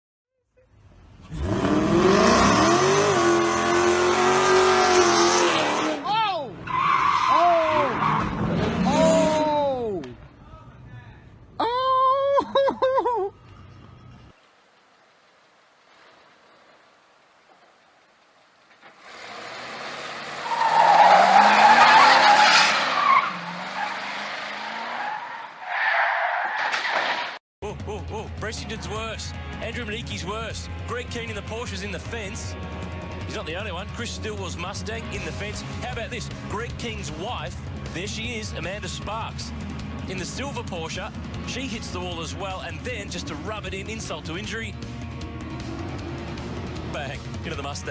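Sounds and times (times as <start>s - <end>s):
car engine revving: 1.2s - 6.1s, 39.4s - 47.9s.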